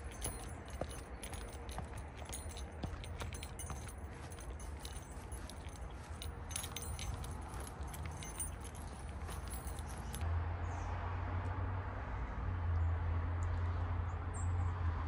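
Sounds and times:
light jingling: 0:00.0 - 0:10.2.

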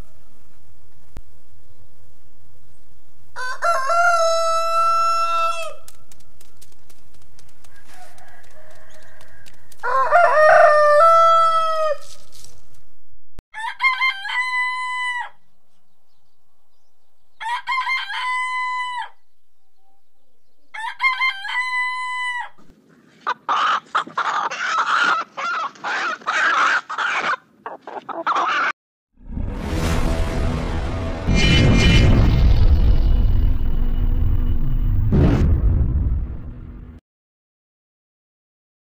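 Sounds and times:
rooster crowing: 0:03.4 - 0:05.9, 0:07.7 - 0:12.2, 0:13.6 - 0:15.4, 0:17.4 - 0:19.2, 0:20.7 - 0:22.6
chickens clucking and squawking: 0:20.7 - 0:28.8.

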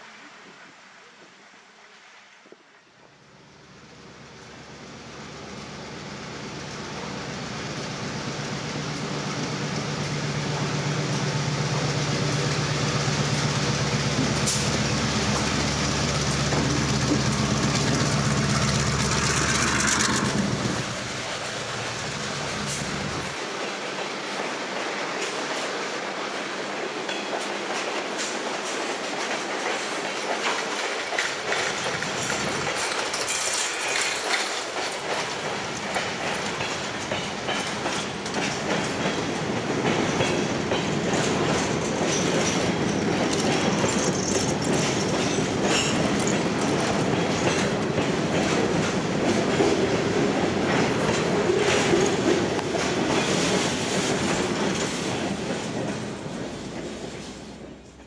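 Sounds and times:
diesel locomotive rumble: 0:03.9 - 0:23.4
train wheels clicking on rails: 0:04.4 - 0:58.0
train cars rattling: 0:05.5 - 0:58.0.

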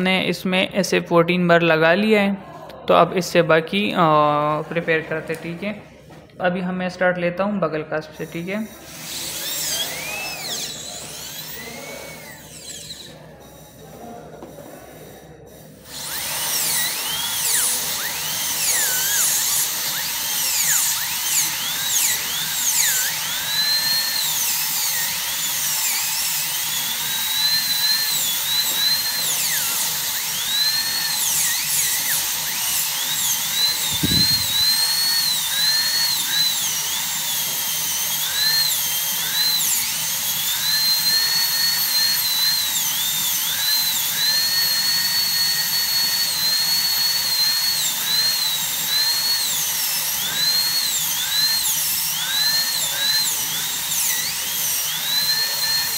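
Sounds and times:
dental drill whining: 0:03.4 - 0:06.3, 0:07.9 - 0:55.9.

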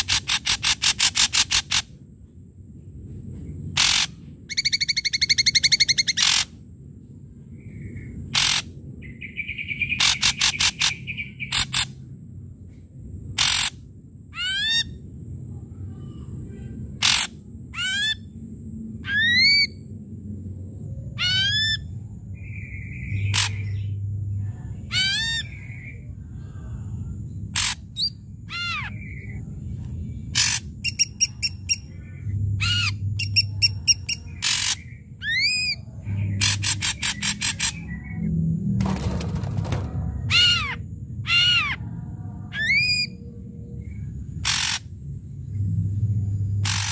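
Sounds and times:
bird whistling calls and rattles: 0:00.0 - 0:01.9, 0:03.7 - 0:06.6, 0:08.0 - 0:12.0, 0:13.3 - 0:13.8, 0:17.0 - 0:18.3, 0:19.0 - 0:19.8, 0:21.2 - 0:24.0, 0:27.5 - 0:29.3, 0:30.3 - 0:41.8, 0:42.6 - 0:43.2, 0:43.8 - 0:44.9, 0:46.6 - 0:46.9.

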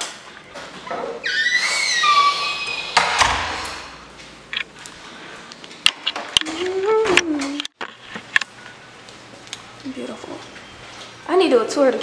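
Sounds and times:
door creaking open: 0:00.5 - 0:04.1.

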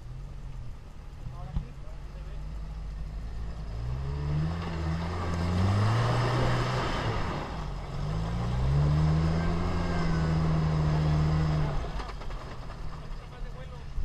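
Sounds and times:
car engine revving hard: 0:03.6 - 0:12.1.

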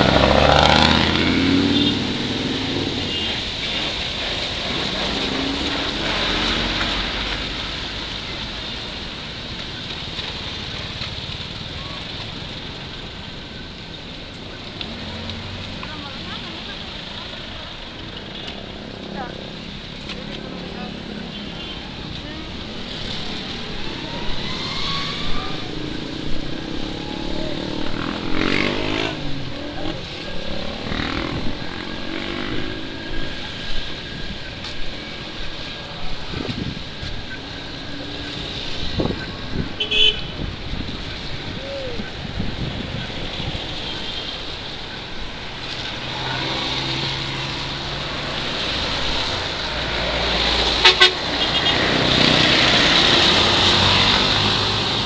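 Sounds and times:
road traffic passing: 0:00.0 - 0:55.0
car horn toots: 0:39.8 - 0:40.3, 0:50.8 - 0:51.8.

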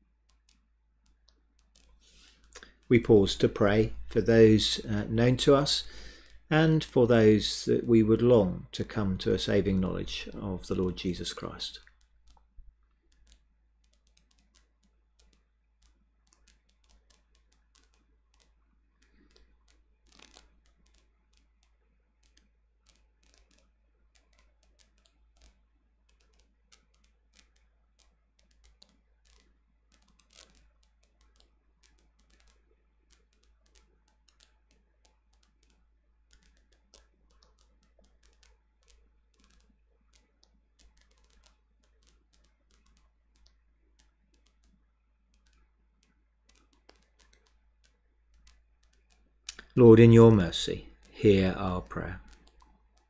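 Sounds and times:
steady low hum: 0:00.0 - 0:13.8
faint small clicks: 0:00.0 - 0:53.0.

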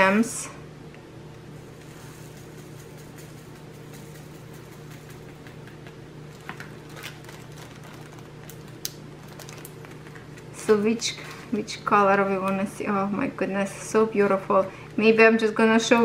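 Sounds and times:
steady low hum: 0:00.0 - 0:16.0
plastic bag rustling: 0:01.6 - 0:11.6.

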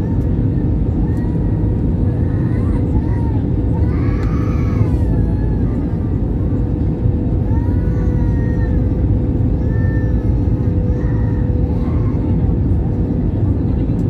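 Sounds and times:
jet engine cabin rumble: 0:00.0 - 0:14.0.

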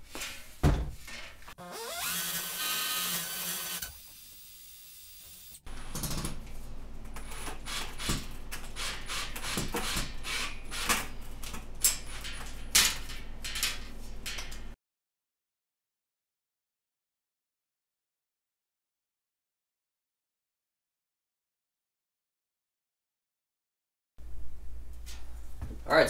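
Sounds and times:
drill boring into concrete: 0:01.6 - 0:05.6.

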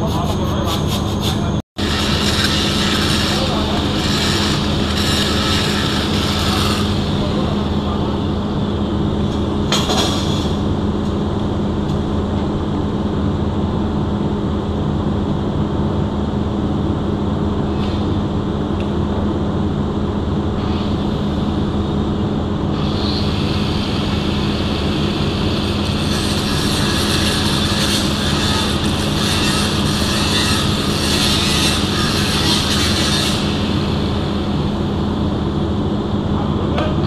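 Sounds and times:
loud metalwork hiss: 0:00.0 - 0:08.1, 0:22.7 - 0:35.0
low machinery hum: 0:00.0 - 0:37.0.

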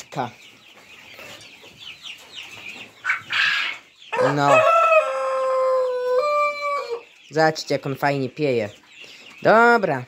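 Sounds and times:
hens clucking: 0:00.0 - 0:10.0
rooster crowing: 0:04.2 - 0:07.0.

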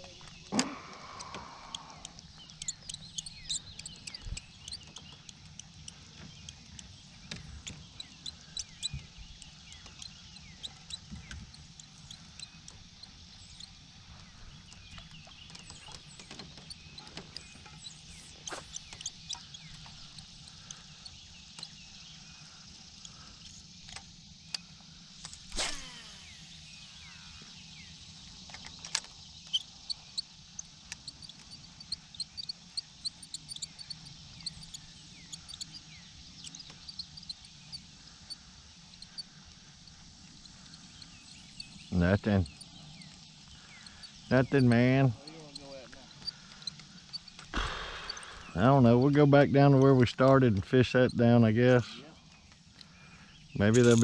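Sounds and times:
faint high chirps: 0:00.0 - 0:06.6
steady low hum: 0:00.0 - 0:54.0.

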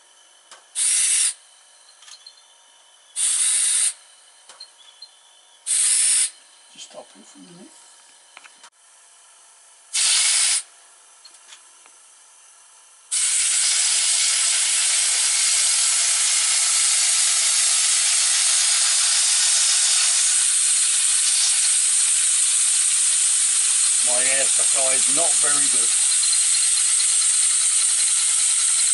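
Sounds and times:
compressed air hissing: 0:00.8 - 0:01.4, 0:03.2 - 0:04.0, 0:05.7 - 0:06.4, 0:09.9 - 0:10.7, 0:13.1 - 0:26.6
short air blast: 0:00.8 - 0:01.4, 0:03.2 - 0:04.0, 0:05.7 - 0:06.4, 0:09.9 - 0:10.7, 0:13.1 - 0:16.5.

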